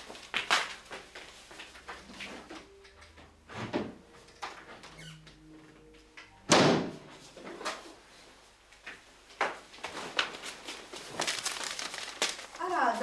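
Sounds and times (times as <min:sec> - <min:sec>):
door slamming shut: 0:06.5 - 0:07.0.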